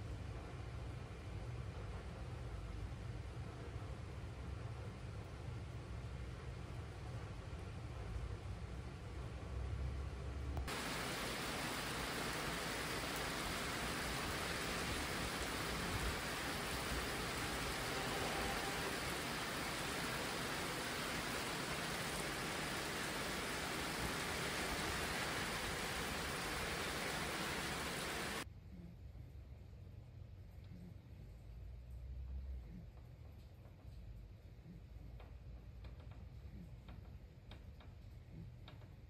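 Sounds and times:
heavy rain falling: 10.6s - 28.4s.

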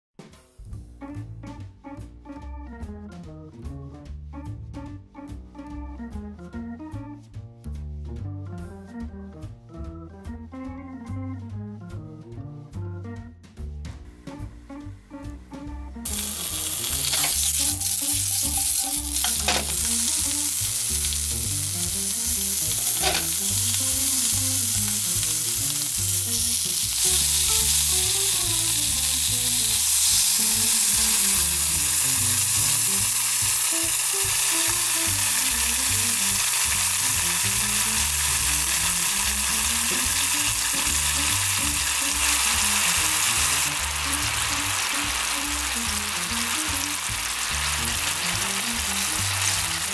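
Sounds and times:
sausages sizzling in pan: 16.0s - 49.9s
water pouring: 16.1s - 33.3s
water boiling hiss: 16.1s - 49.9s.

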